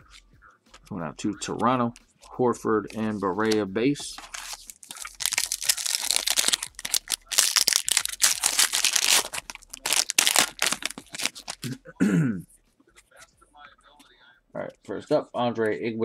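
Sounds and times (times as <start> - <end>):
foil wrapper tearing and crinkling: 4.1 - 11.8.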